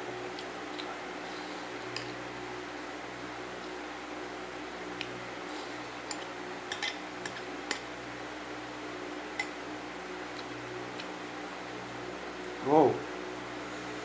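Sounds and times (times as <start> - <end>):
steady low hum: 0.0 - 14.0
spoon clicking on plate: 6.1 - 7.8.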